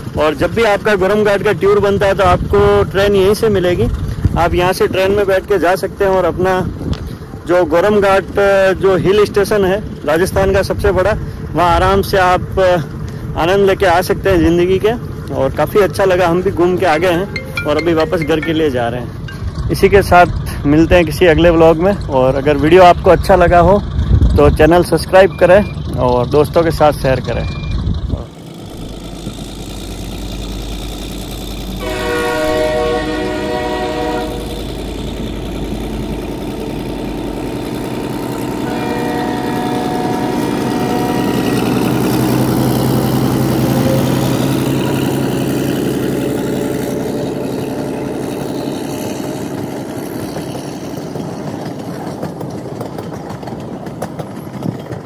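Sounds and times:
train coaches rumbling on rails: 0.0s - 55.0s
train horn: 31.8s - 34.7s, 38.6s - 42.2s.

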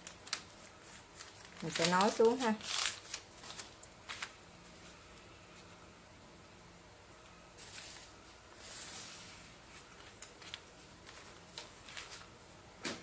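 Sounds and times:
paper rustling: 0.0s - 4.9s, 7.6s - 12.4s.

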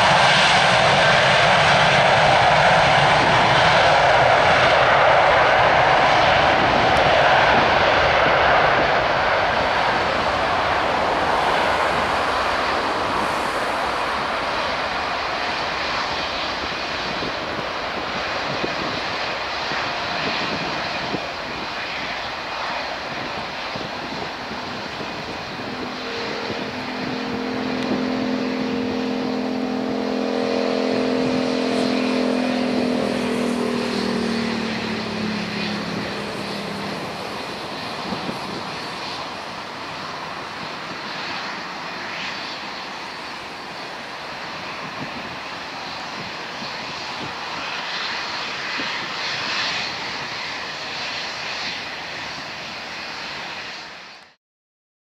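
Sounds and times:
jet engines roaring at takeoff: 0.0s - 54.4s
humming tone dropping in pitch: 23.8s - 39.3s.

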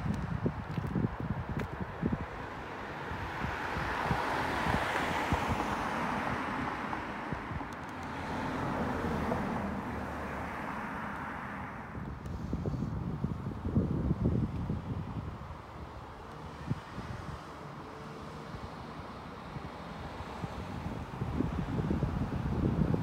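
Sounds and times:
wind buffeting microphone: 0.0s - 10.2s, 11.9s - 23.0s
car passing: 2.4s - 12.7s.

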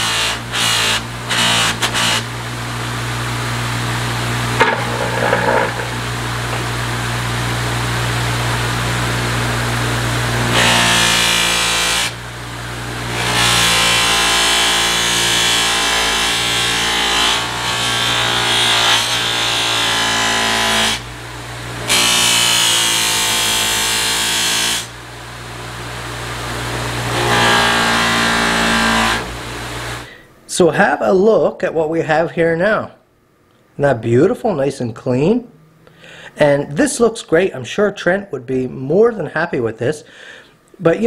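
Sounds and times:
blade scraping on buffing wheel: 4.5s - 6.6s.

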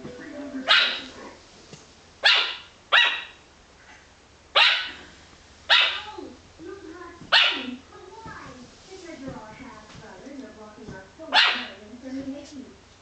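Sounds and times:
puppy barking: 0.6s - 1.4s, 2.2s - 3.4s, 4.5s - 5.0s, 5.7s - 6.1s, 7.3s - 7.7s, 11.3s - 11.8s.

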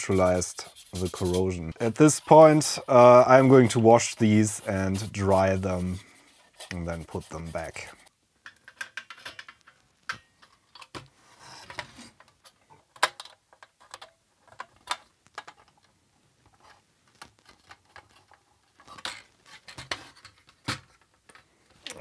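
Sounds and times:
soft rasp: 0.0s - 8.1s.

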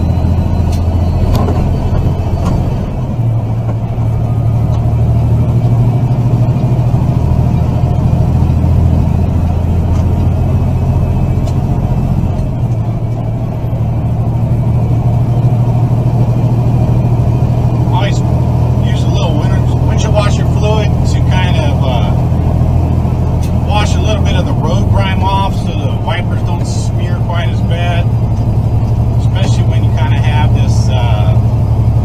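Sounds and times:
road noise: 0.0s - 32.0s
truck diesel engine drone in cab: 0.0s - 32.0s.

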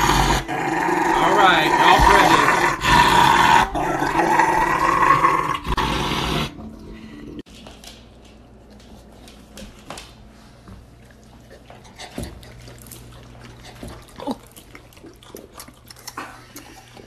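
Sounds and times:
dog growling: 0.0s - 6.7s.

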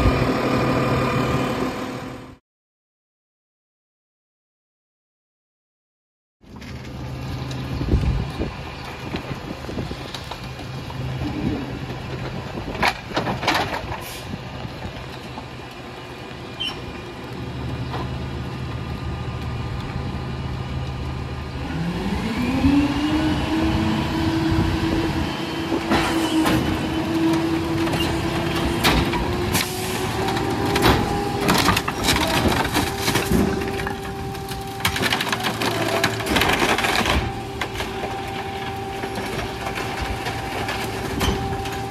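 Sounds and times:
garbage truck diesel engine: 0.0s - 2.4s, 6.4s - 41.9s
wood cracking and snapping: 27.1s - 38.4s.

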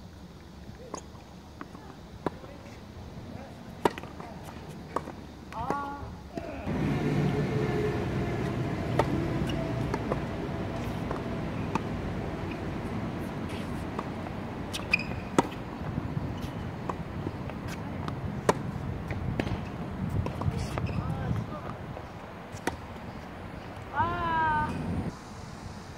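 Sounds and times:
steady background noise: 0.0s - 25.9s
tennis ball struck by rackets: 6.7s - 17.1s.

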